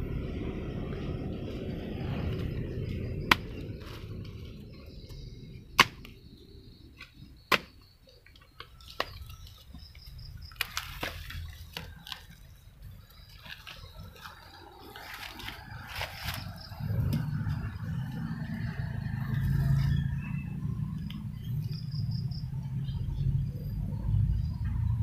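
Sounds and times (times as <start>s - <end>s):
low rumble: 0.0s - 6.8s, 15.6s - 25.0s
hoe chopping into soil: 5.7s - 6.2s, 7.0s - 7.8s.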